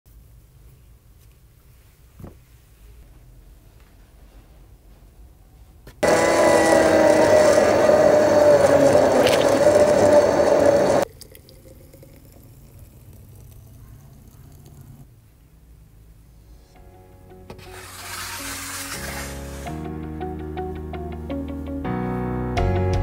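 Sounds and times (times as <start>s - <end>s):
electric blender motor whining: 6.0s - 11.0s, 17.5s - 19.8s
smoothie pouring into glass jar: 6.0s - 15.0s.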